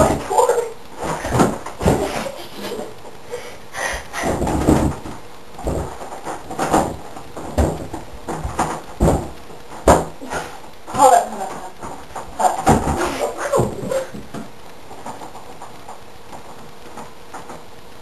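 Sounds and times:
banging on wooden door: 4.2 - 10.2.

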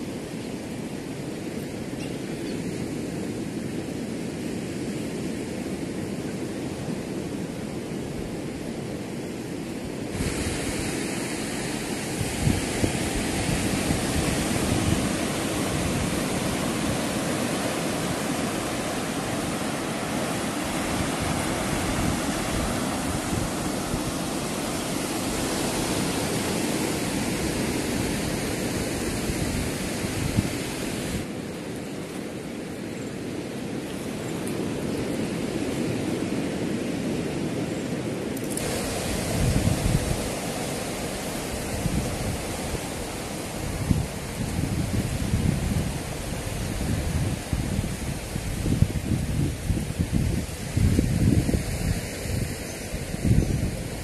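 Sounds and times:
sea surf rushing: 0.0 - 54.0
wind blowing over microphone: 0.0 - 54.0.

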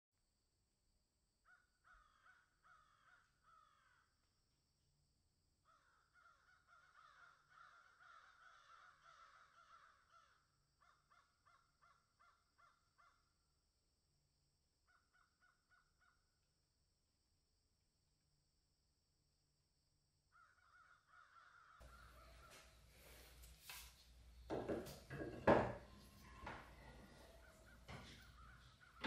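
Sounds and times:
faint bird calls: 1.4 - 4.2, 5.6 - 13.5, 14.8 - 16.4, 20.3 - 23.4, 25.9 - 29.0.

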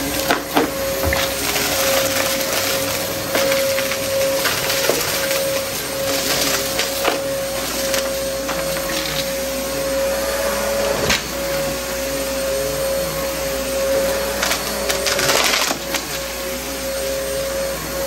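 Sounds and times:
vacuum crunching debris: 0.0 - 9.4, 13.8 - 16.3
vacuum cleaner motor whine: 0.0 - 18.0.

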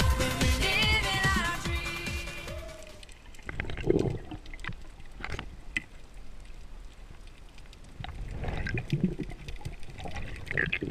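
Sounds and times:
muffled underwater water wash: 2.6 - 10.9.

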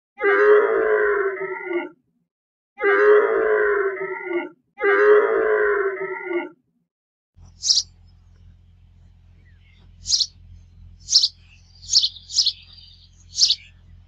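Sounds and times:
faint low hum: 7.4 - 14.0
animal giving high chirps: 7.6 - 7.9, 10.0 - 10.4, 11.0 - 13.7.

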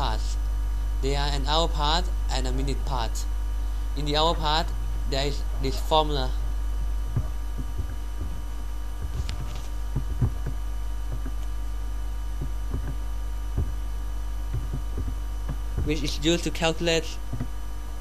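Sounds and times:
electrical mains hum: 0.0 - 18.0
soft clicks and thumps: 6.8 - 11.7, 12.3 - 16.1, 17.2 - 17.6.

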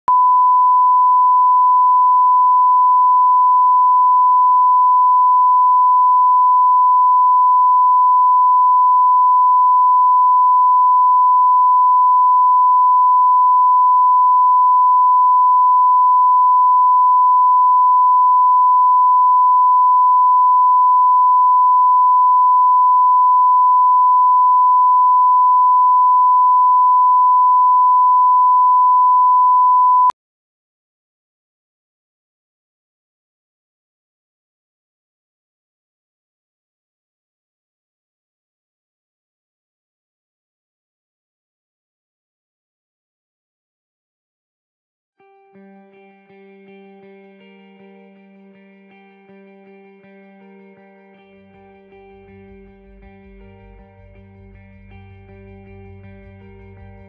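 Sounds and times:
steady pure tone beep: 0.1 - 30.2.

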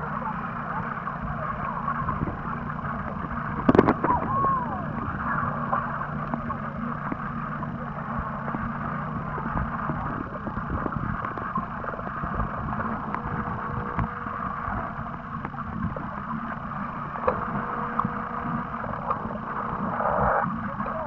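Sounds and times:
faint steady hum: 0.0 - 21.0
underwater water noise: 0.0 - 21.0
low underwater knocks: 3.1 - 4.5.

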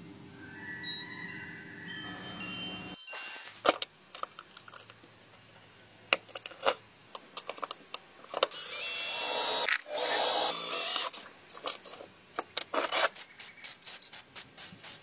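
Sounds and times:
electric drill running: 8.5 - 11.2.

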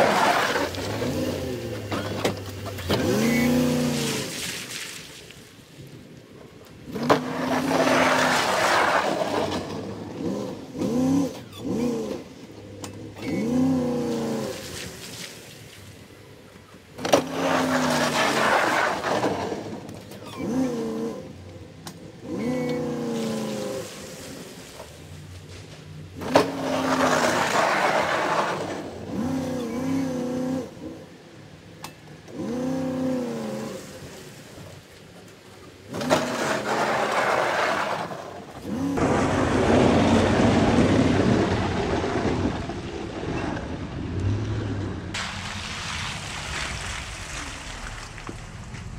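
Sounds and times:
truck engine revving: 0.0 - 4.4, 6.9 - 14.7, 35.9 - 48.9
blade scraping slush on pavement: 0.0 - 6.1, 6.7 - 21.4, 22.1 - 31.0, 32.3 - 48.9.

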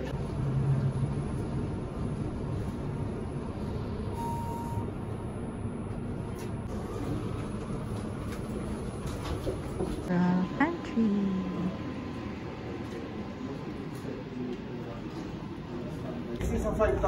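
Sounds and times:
elevator low rumble: 0.0 - 17.0
short beep: 4.1 - 4.9.

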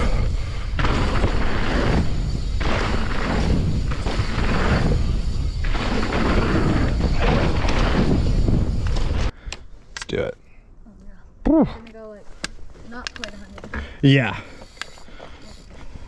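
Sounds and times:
tyres rolling over dirt: 0.0 - 9.3
wind rumble on microphone: 0.0 - 9.3.

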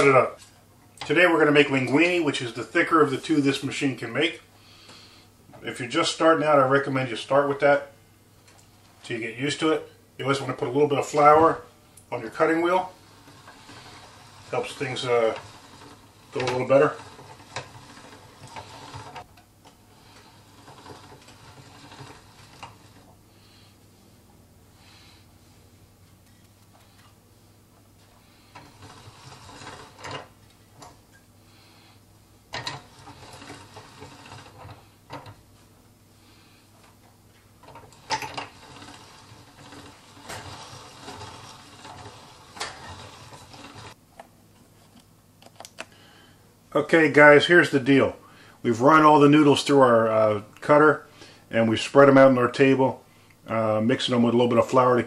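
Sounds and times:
pasta machine gears ticking: 12.0 - 19.3, 19.9 - 23.1, 28.4 - 31.0, 32.5 - 35.4, 37.6 - 44.0.

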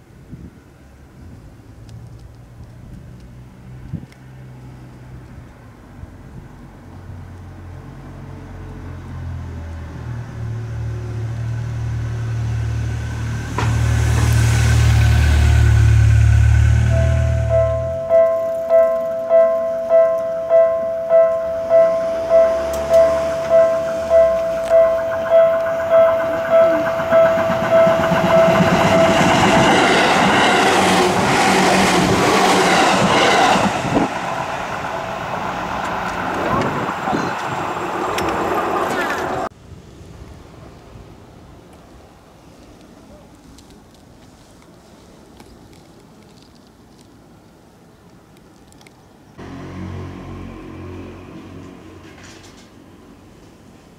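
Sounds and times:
electric train passing: 7.9 - 42.2, 49.4 - 53.9
car engine rumble: 10.4 - 39.5
level crossing warning bell: 16.9 - 30.7.

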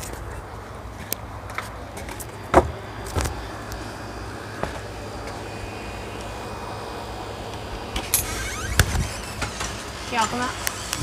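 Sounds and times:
wind rumbling on microphone: 0.0 - 11.0
sharp thumps: 8.0 - 11.0.

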